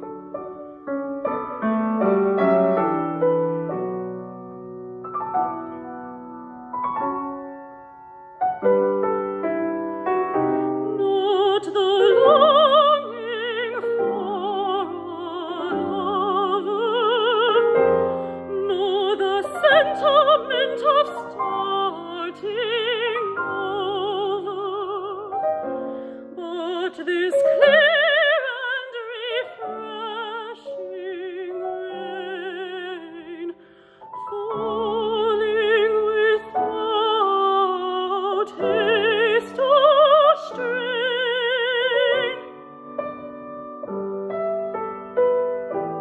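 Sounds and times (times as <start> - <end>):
piano accompaniment: 0.0 - 46.0
woman singing with vibrato: 11.0 - 25.4, 26.3 - 33.6, 34.2 - 42.5.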